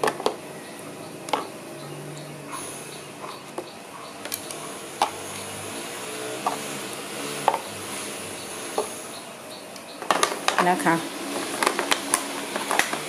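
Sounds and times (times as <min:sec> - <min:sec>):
plastic charger and cord clicks: 0:11.4 - 0:13.0.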